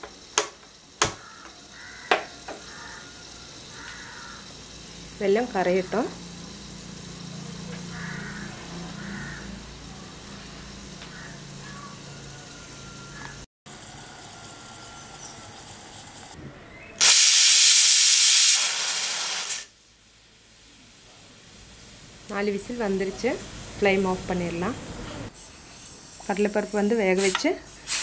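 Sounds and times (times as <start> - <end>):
pressure cooker whistle hiss: 11.7 - 16.4, 17.0 - 19.7, 26.3 - 28.0.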